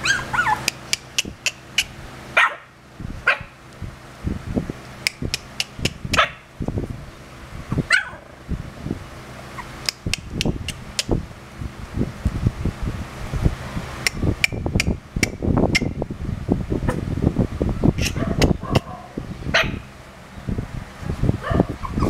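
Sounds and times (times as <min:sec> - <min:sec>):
puppies yipping and whimpering: 0:00.0 - 0:00.8, 0:09.5 - 0:09.8, 0:21.4 - 0:22.0
sharp clicks: 0:00.6 - 0:01.9, 0:05.0 - 0:06.2, 0:09.8 - 0:11.2.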